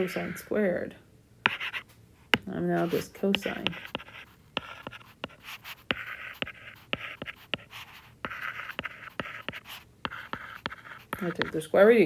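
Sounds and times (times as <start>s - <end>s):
stylus scratching strokes: 0.0s - 0.5s, 2.7s - 11.6s.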